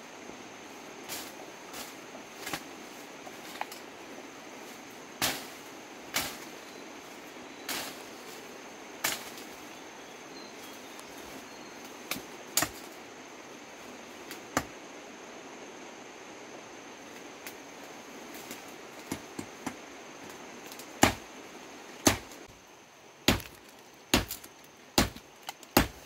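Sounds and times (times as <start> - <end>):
machete chopping bamboo: 5.2 - 5.5, 12.1 - 12.9, 20.7 - 21.3, 22.0 - 22.4, 23.2 - 26.0.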